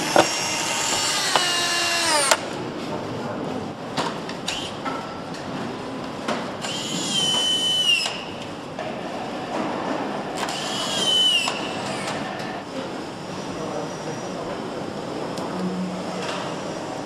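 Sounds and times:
power screwdriver whine: 0:00.0 - 0:02.4, 0:06.6 - 0:08.2, 0:10.4 - 0:12.5.

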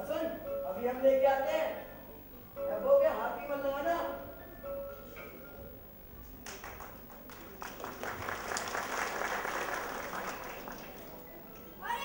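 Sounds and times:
audience applause: 0:06.4 - 0:11.3.

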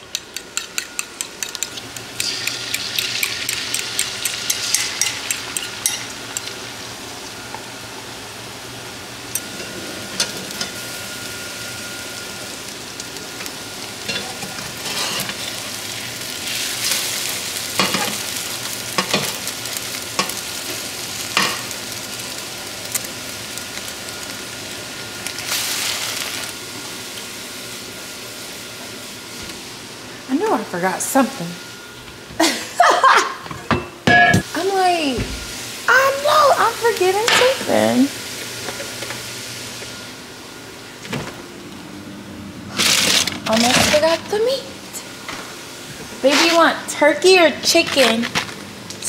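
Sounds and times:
eggs sizzling in a pan: 0:00.1 - 0:28.4, 0:34.4 - 0:40.3
metal spatula scraping a pan: 0:14.1 - 0:15.4.

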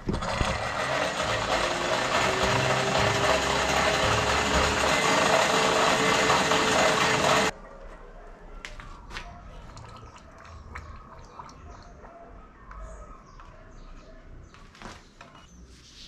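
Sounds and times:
forge blower rushing with hum: 0:00.0 - 0:07.5.

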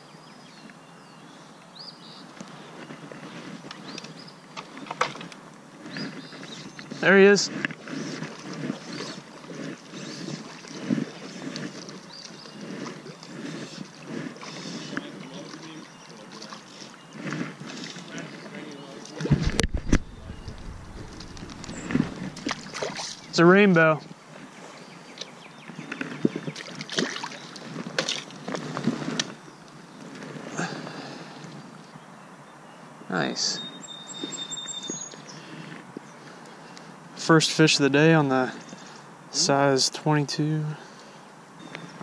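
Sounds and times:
water sloshing: 0:07.2 - 0:23.6, 0:25.9 - 0:29.3
wind buffeting microphone: 0:19.2 - 0:23.4.

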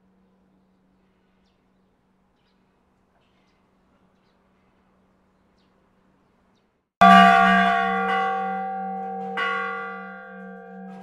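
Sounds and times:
church bell ringing: 0:07.0 - 0:11.0.

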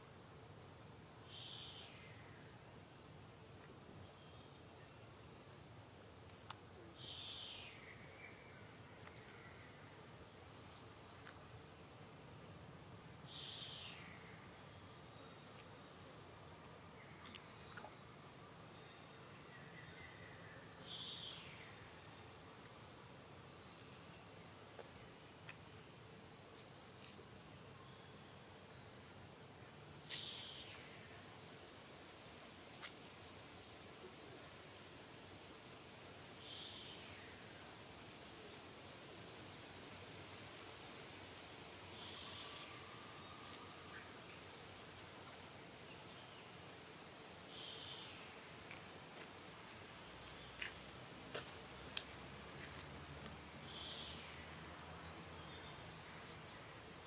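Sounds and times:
insects droning: 0:00.0 - 0:57.0
faint ticks: 0:06.2 - 0:06.6, 0:50.2 - 0:53.4.

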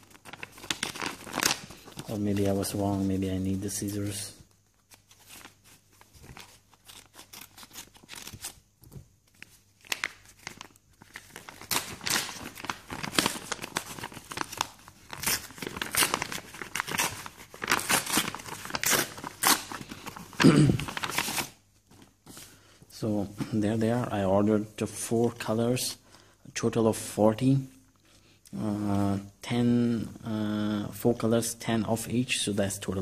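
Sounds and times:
paper tearing and crinkling: 0:00.0 - 0:02.6, 0:04.8 - 0:08.6, 0:09.3 - 0:21.6.

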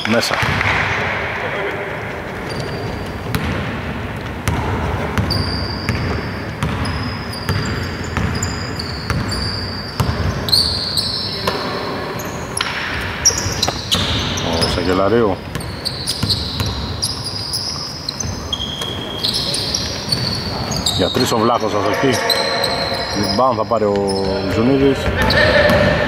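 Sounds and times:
sneaker soles squeaking: 0:01.7 - 0:03.6, 0:04.3 - 0:26.0
basketball bouncing on hardwood: 0:03.2 - 0:03.8, 0:04.4 - 0:08.4.

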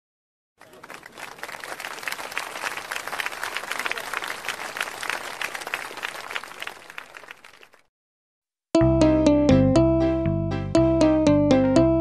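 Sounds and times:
crowd applause: 0:00.6 - 0:07.9.

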